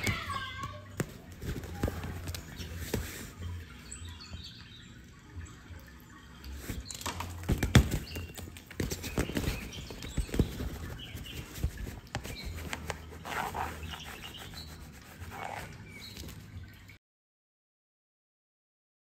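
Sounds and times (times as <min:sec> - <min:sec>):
cat scrabbling against fabric: 0:07.4 - 0:14.1
cat thumping and scuffing in tunnel: 0:07.5 - 0:13.0.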